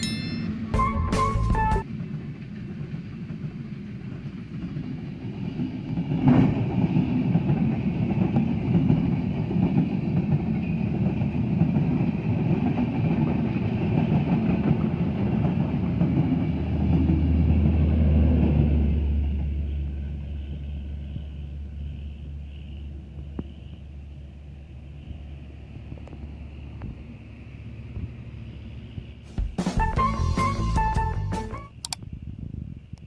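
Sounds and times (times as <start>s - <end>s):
train wheels clattering over rails: 0.4s - 22.0s
generator car low hum: 16.8s - 33.0s.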